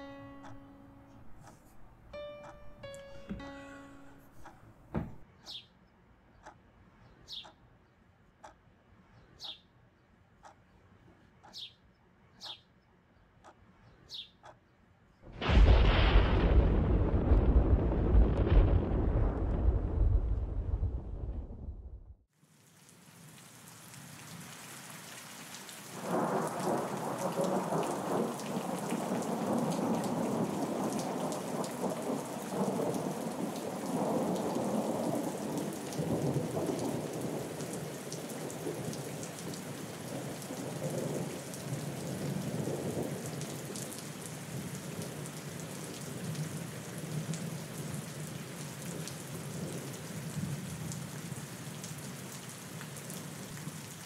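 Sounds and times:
steady rain: 15.3 - 21.2, 22.3 - 54.0
thunder rolling: 15.3 - 22.2.

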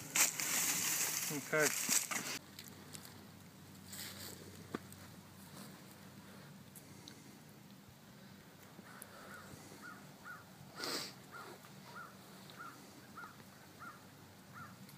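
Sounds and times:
bird calling: 8.8 - 10.5, 11.2 - 14.9.

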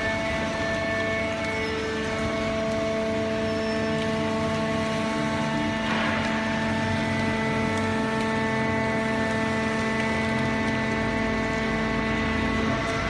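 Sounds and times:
hydraulic power unit humming: 0.0 - 13.0.

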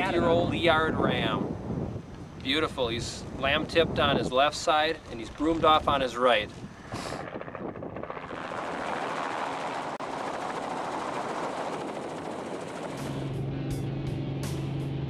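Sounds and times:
helicopter rotor chopping: 3.2 - 13.9.

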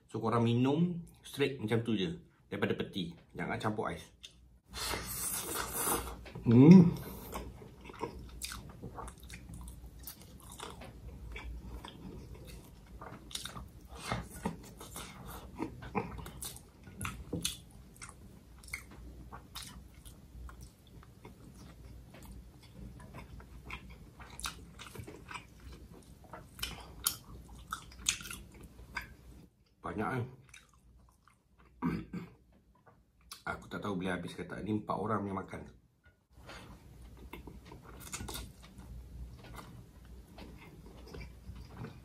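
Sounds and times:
person chewing food: 4.2 - 29.5, 30.4 - 31.8, 36.4 - 42.0.

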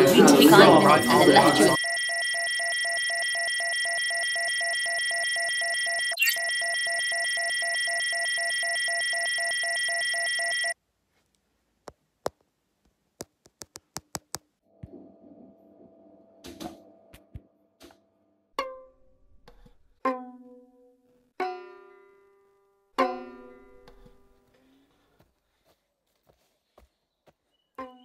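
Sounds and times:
electronic error tone: 0.1 - 2.4.

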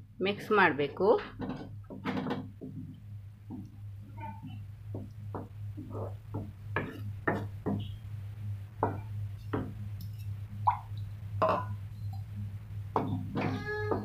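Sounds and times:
steady low hum: 0.0 - 14.0
spatula scraping a pan: 5.8 - 6.2.

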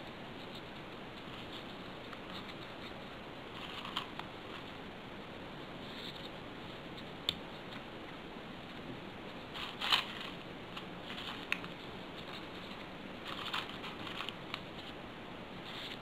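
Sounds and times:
paper rustling and crinkling: 1.2 - 4.7, 9.5 - 15.0.

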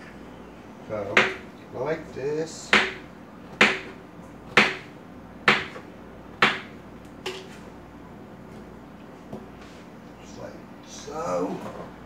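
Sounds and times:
knife chopping on cutting board: 1.1 - 1.4, 2.7 - 4.9, 5.5 - 5.8, 6.4 - 6.7.

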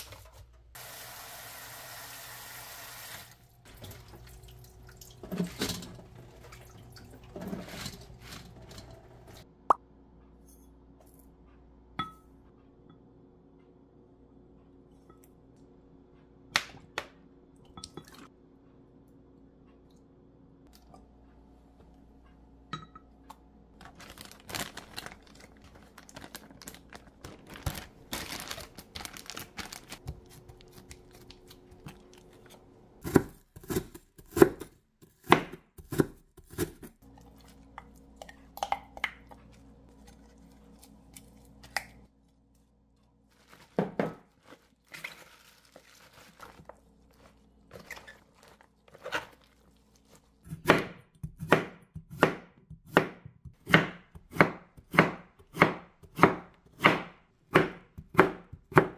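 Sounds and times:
knife chopping on a cutting board: 33.0 - 36.9, 50.5 - 58.9.

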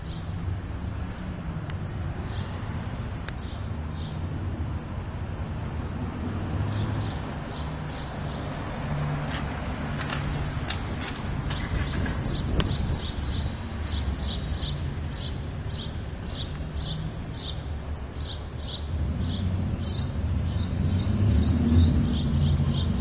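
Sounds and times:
traffic rumble: 0.0 - 23.0
wind on microphone: 8.6 - 15.2.

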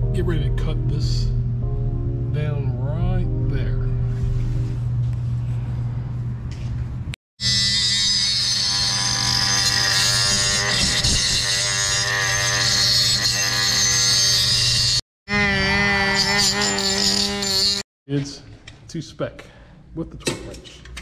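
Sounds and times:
low background music: 0.0 - 6.5
power grinder grinding metal: 7.4 - 17.8.

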